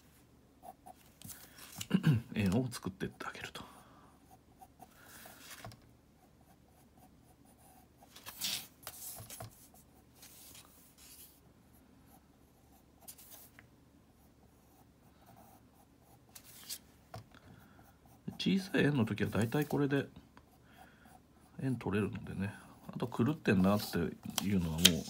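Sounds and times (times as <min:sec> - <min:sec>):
pencil scratching on paper: 0:04.3 - 0:11.4, 0:14.2 - 0:16.8.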